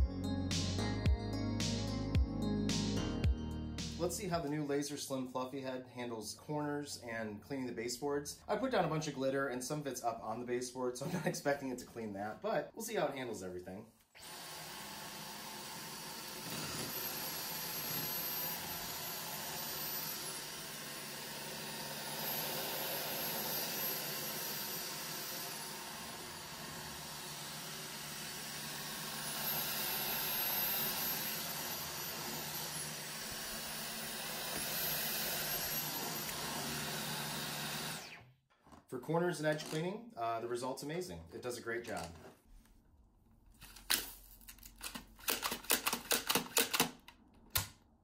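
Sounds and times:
vacuum cleaner motor running: 0:14.2 - 0:38.2.

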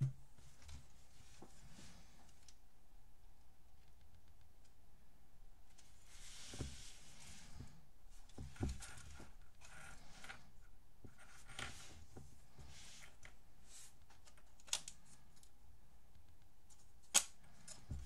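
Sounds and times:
plastic toy rustling and rubbing: 0:05.9 - 0:14.4.

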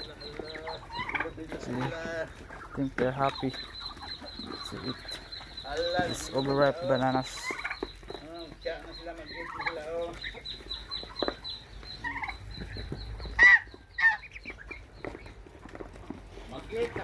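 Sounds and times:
loud bird squawks: 0:00.0 - 0:15.4
poultry clucking and calling: 0:00.0 - 0:17.0
high chirp: 0:02.6 - 0:15.4.

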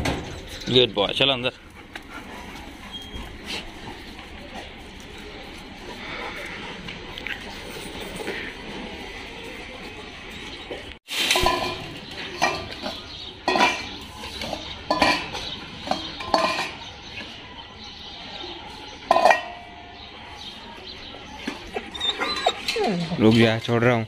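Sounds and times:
metal dog bowls clanking: 0:10.3 - 0:17.2, 0:19.0 - 0:20.1, 0:21.2 - 0:23.7.

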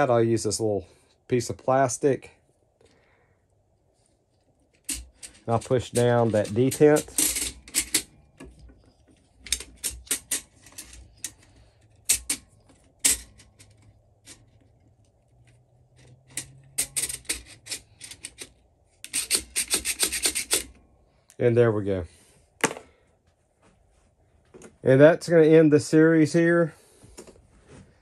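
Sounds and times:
metal clicks: 0:04.7 - 0:20.8
spring coils scraping a metal tube: 0:04.7 - 0:20.8.

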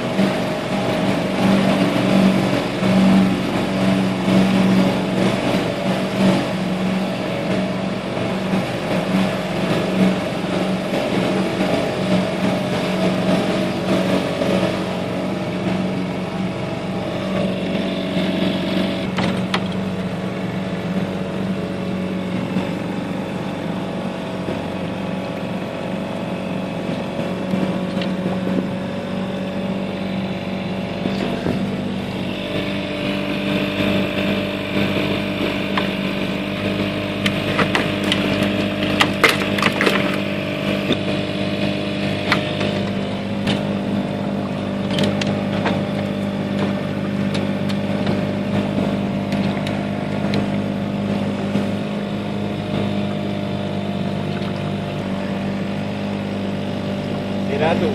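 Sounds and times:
boat engine humming: 0:00.0 - 0:57.9
sharp clicks and knocks: 0:44.8 - 0:48.2.

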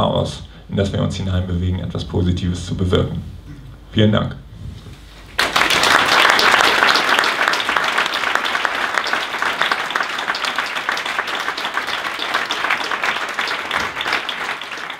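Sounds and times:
audience applauding: 0:05.3 - 0:14.9.

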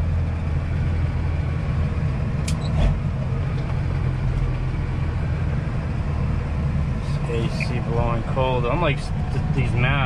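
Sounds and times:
diesel truck engine running: 0:00.0 - 0:10.0
road noise: 0:00.0 - 0:10.0
sharp click: 0:02.4 - 0:02.6.

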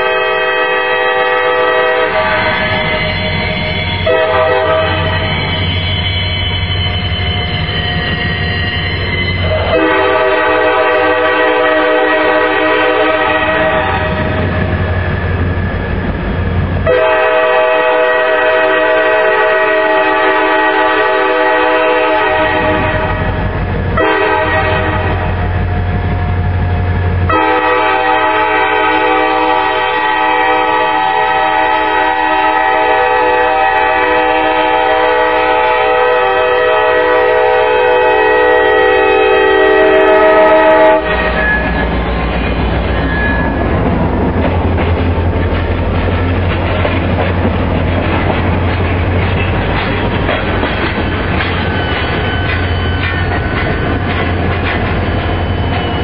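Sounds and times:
locomotive air horn blasts: 0:00.0 - 0:03.2, 0:03.9 - 0:05.4, 0:09.4 - 0:14.3, 0:16.8 - 0:23.3, 0:24.0 - 0:25.4, 0:27.3 - 0:41.7.

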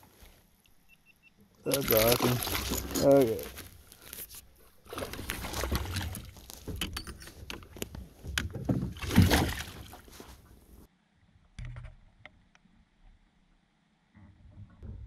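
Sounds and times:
water sloshing: 0:01.6 - 0:10.9
fish thrashing and splashing: 0:01.7 - 0:04.2, 0:04.8 - 0:07.4, 0:08.7 - 0:10.4.

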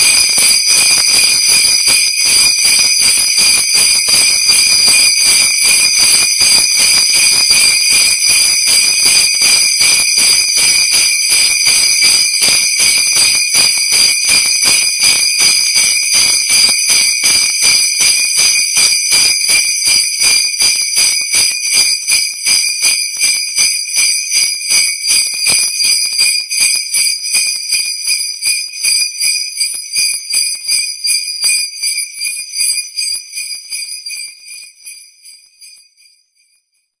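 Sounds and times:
sleigh bells shaking: 0:00.0 - 0:36.6.

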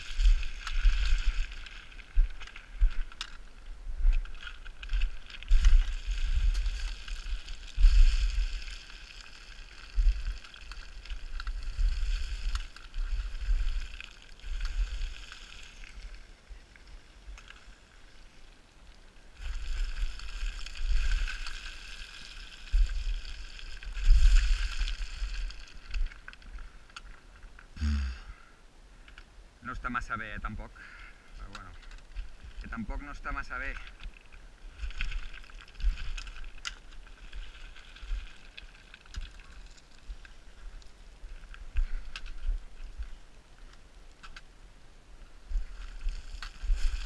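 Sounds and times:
shifting stones hissing: 0:00.0 - 0:18.6, 0:19.2 - 0:28.4.

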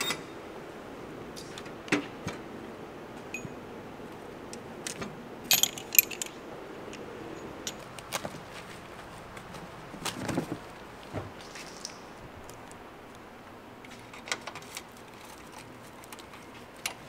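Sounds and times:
metal sockets clinking: 0:05.5 - 0:08.0.

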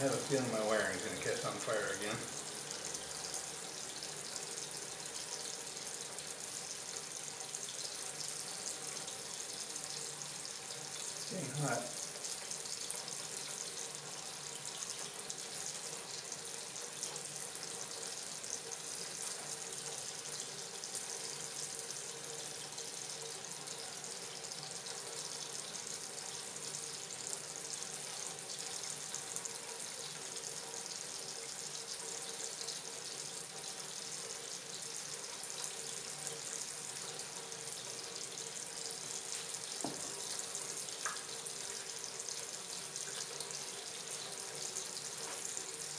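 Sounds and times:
tap running into full sink: 0:39.4 - 0:41.3.

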